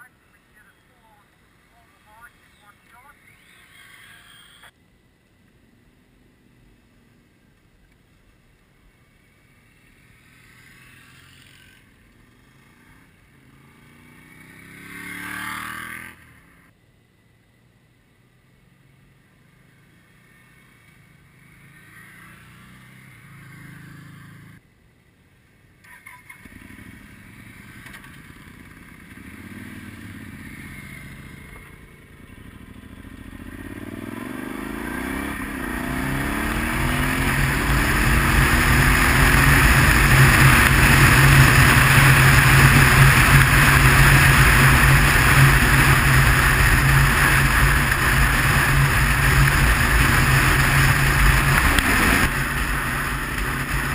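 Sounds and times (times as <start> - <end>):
motorcycle engine accelerating: 9.2 - 16.7, 18.8 - 24.6, 25.9 - 53.9.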